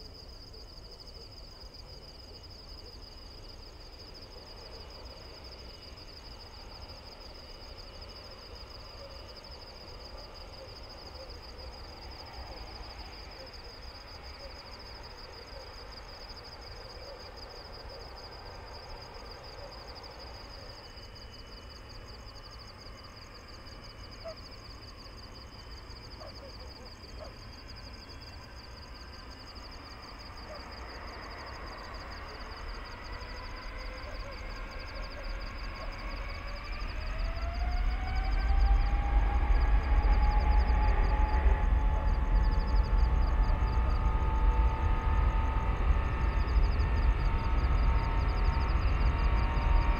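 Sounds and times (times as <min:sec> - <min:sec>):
distant jet engine rumble: 0:09.4 - 0:49.9
rising whine: 0:36.1 - 0:49.9.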